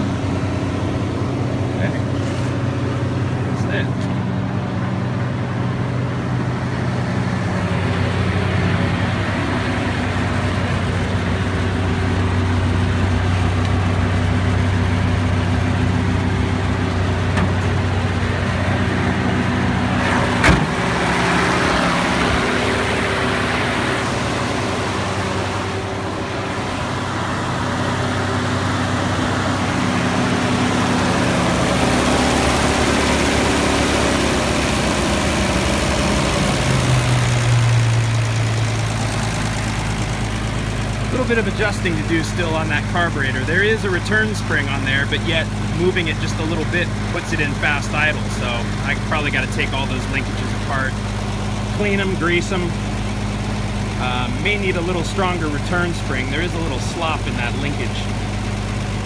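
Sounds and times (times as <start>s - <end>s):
truck engine idling: 0.0s - 59.0s.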